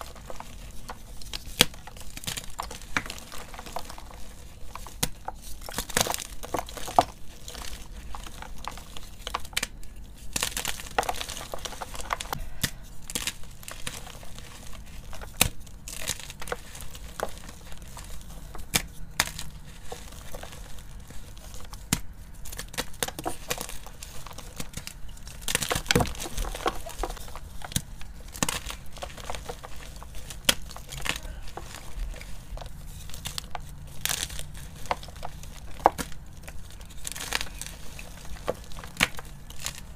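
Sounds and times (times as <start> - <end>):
chalk crunching and crackling: 0.0 - 39.9.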